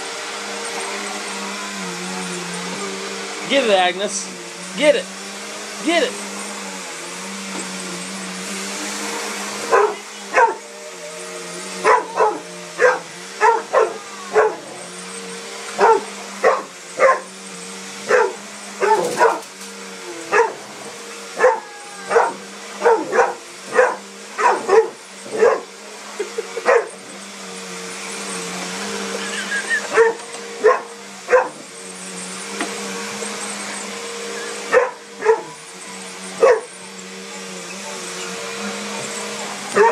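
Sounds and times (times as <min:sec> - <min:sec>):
vacuum cleaner motor humming: 0:00.0 - 0:39.9
puppy barking: 0:09.7 - 0:10.7, 0:11.8 - 0:14.8, 0:15.8 - 0:17.3, 0:18.1 - 0:19.5, 0:20.3 - 0:20.6, 0:21.4 - 0:25.7, 0:26.6 - 0:27.0, 0:29.2 - 0:31.6, 0:34.4 - 0:35.6, 0:36.4 - 0:36.8.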